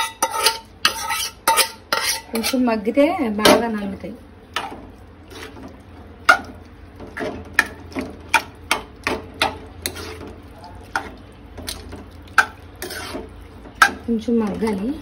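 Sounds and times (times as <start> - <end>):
metal spoon scraping metal pan: 0.0 - 3.6, 7.2 - 15.0.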